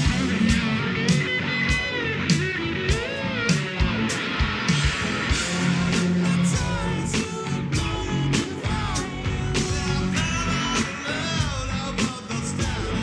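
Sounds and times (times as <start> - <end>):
live rock band playing: 0.0 - 13.0
person singing: 5.3 - 13.0.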